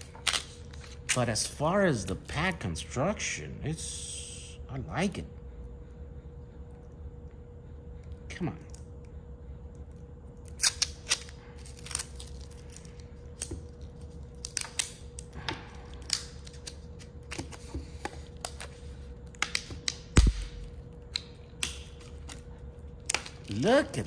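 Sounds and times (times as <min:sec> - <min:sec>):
tape peeling crackles: 0:00.0 - 0:01.4, 0:10.4 - 0:23.7.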